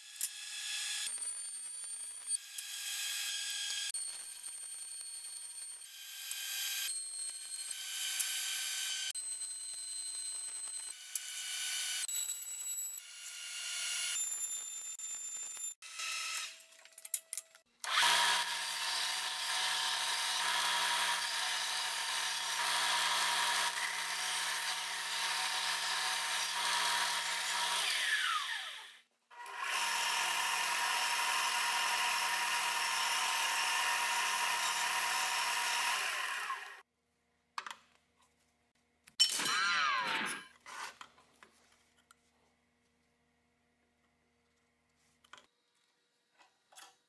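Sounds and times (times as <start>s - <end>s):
belt sander grinding metal: 17.8s - 36.8s
belt sander motor hum: 17.9s - 36.8s.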